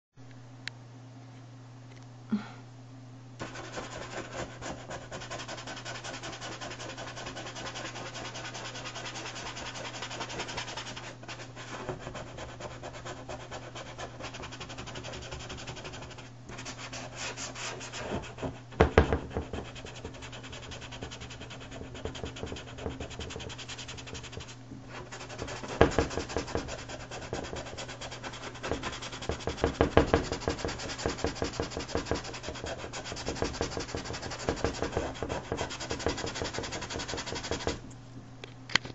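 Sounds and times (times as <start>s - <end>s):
steady low hum: 0.2s - 38.9s
paintbrush scrubbing on paper: 3.4s - 18.4s, 19.5s - 37.8s.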